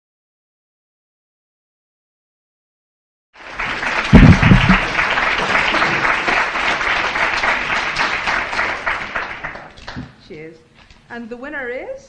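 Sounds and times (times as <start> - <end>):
audience applauding: 3.4 - 10.1
loud low-pitched burst: 4.1 - 5.0.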